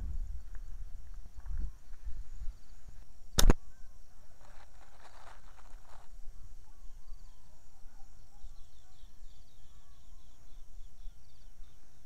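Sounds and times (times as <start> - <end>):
insect drone: 0.0 - 12.0
small birds chirping: 0.0 - 12.0
whistled bird notes: 6.3 - 12.0.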